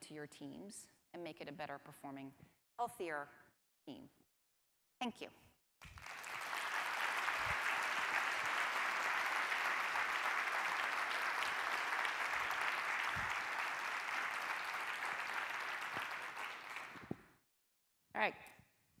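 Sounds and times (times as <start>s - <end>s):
audience applauding: 5.8s - 17.2s.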